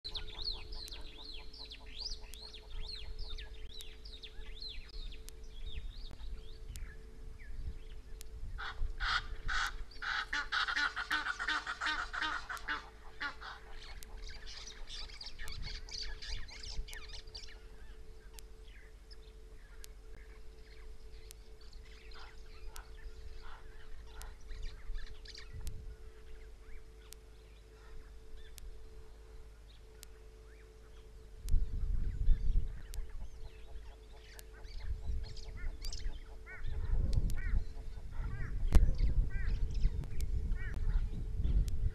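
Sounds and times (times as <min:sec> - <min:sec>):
faint steady hum: 0:00.0 - 0:41.9
low wind rumble: 0:00.0 - 0:41.9
small birds twittering: 0:00.0 - 0:41.9
geese honking: 0:08.6 - 0:28.6, 0:32.7 - 0:38.6.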